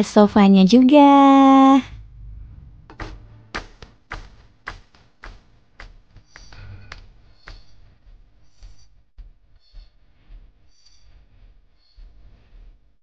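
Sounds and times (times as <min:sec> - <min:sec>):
faint low rumble: 0:00.1 - 0:04.1
footsteps walking: 0:02.9 - 0:12.9.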